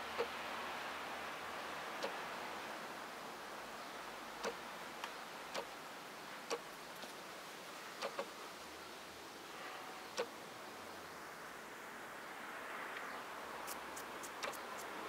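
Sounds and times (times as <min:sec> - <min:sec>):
steady outdoor hiss: 0:00.0 - 0:15.0
short sharp ticks: 0:13.7 - 0:14.9.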